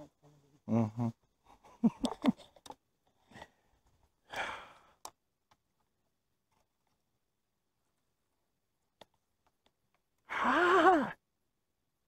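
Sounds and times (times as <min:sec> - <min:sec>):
person wordless vocal sounds: 0:00.0 - 0:01.2, 0:10.3 - 0:11.2
person breathy sigh: 0:04.3 - 0:05.0, 0:10.3 - 0:11.2.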